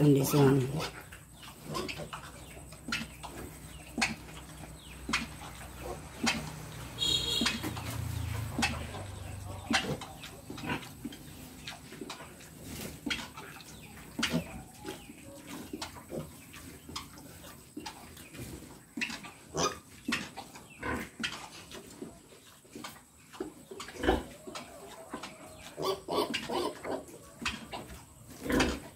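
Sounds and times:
sow and piglets calling: 0.0 - 28.9.

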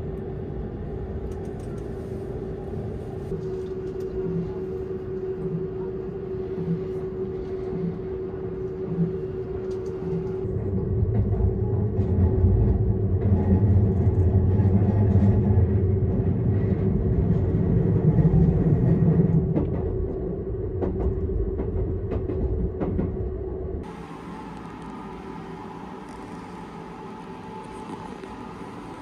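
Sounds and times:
train hum with higher tones: 0.0 - 29.0
train rumble from inside carriage: 0.0 - 29.0.

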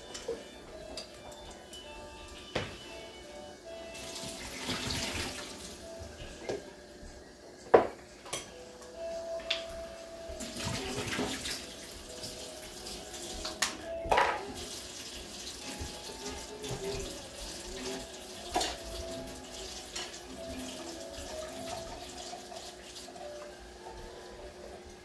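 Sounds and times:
faint music: 0.0 - 25.0
tap water running into sink: 3.9 - 5.8, 10.4 - 23.5.

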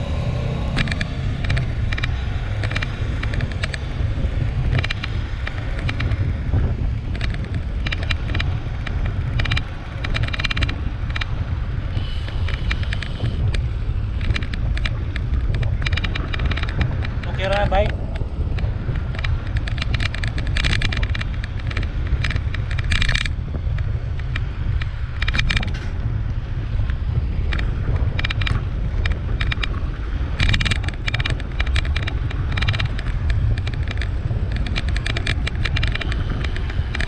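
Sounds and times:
bicycle clicks and rattles: 0.0 - 37.0
wind buffeting microphone: 0.0 - 37.0.

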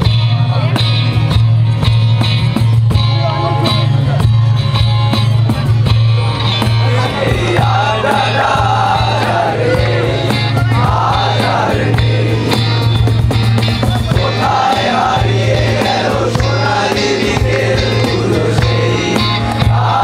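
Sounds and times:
cajon beat: 0.0 - 20.0
strummed acoustic guitars: 0.0 - 20.0
men singing together: 6.6 - 13.1, 14.0 - 20.0.

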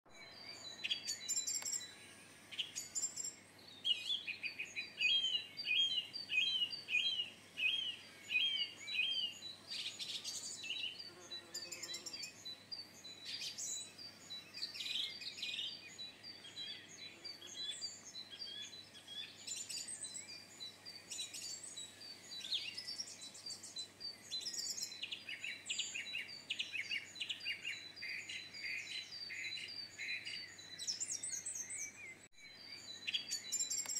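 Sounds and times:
songbirds singing: 0.1 - 33.9.

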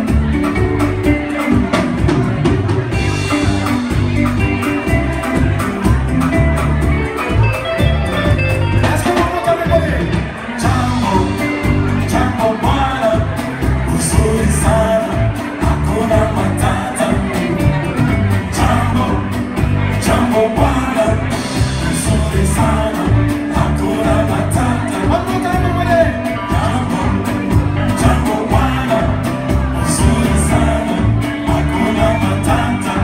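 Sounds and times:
live rock band playing: 0.0 - 33.0
person singing: 8.8 - 33.0.

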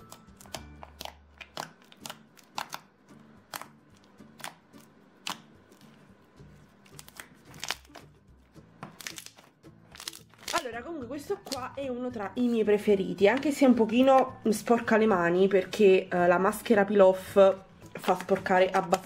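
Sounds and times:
quiet background music: 0.0 - 19.0
slime popping and clicking: 0.4 - 2.9.

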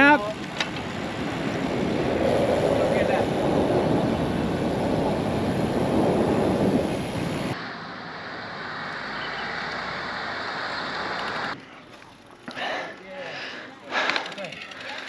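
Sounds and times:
wind noise on microphone: 0.0 - 7.6.

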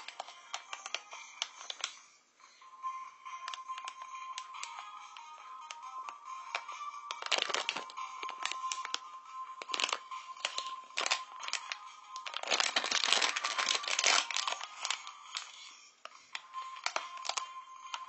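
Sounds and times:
plastic wrapper crinkling: 0.0 - 2.0, 3.4 - 4.9, 6.5 - 9.0, 9.6 - 18.0.

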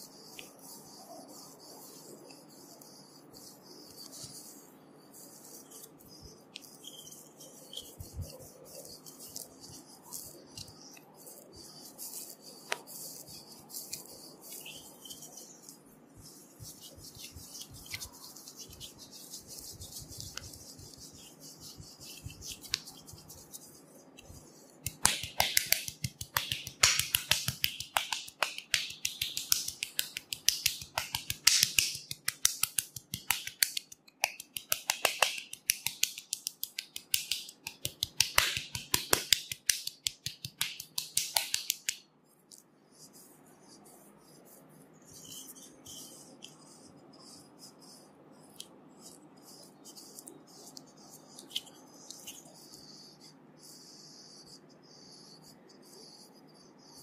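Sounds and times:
paddle rubbing oiled skin: 6.6 - 41.9
rapid paddle taps on skin: 24.8 - 42.0.

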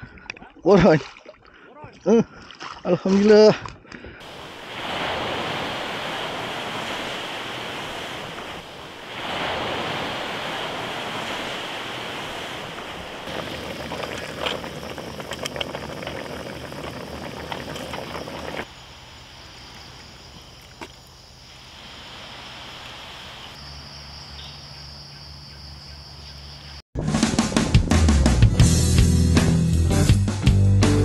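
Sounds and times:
wind: 0.0 - 26.8
waves: 4.2 - 18.7, 21.5 - 24.5.

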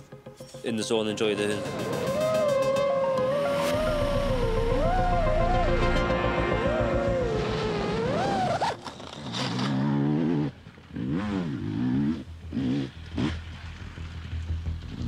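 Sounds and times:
dirt bike engine revving: 1.7 - 15.0.

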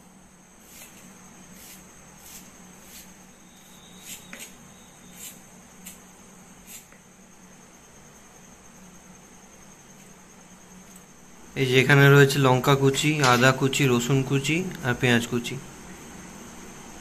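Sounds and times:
steady low hum: 0.0 - 17.0
blade cutting garlic and chilli: 0.6 - 6.0.

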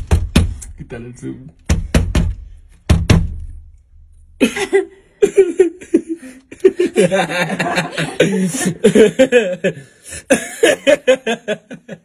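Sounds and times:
suppressed laughter and snickering: 4.4 - 12.0.

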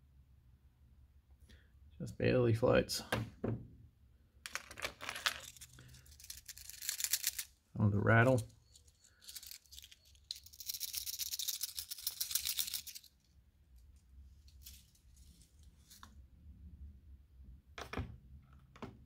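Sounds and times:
lure rattle clicking: 4.5 - 7.6, 8.3 - 13.2.

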